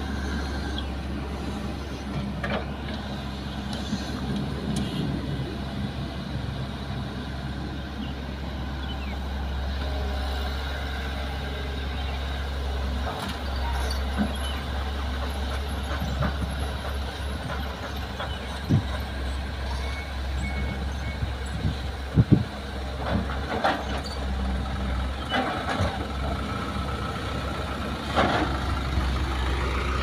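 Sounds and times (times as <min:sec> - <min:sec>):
diesel engines rumbling: 0:00.0 - 0:30.0.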